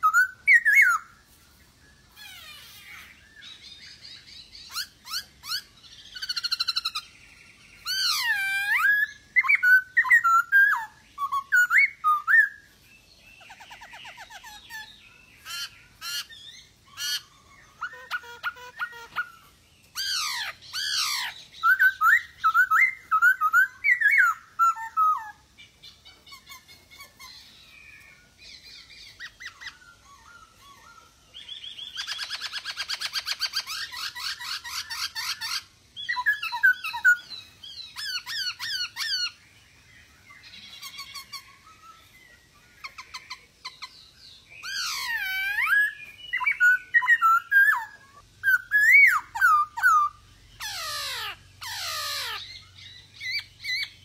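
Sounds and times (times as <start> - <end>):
bird whistling and warbling song: 0.0 - 54.0.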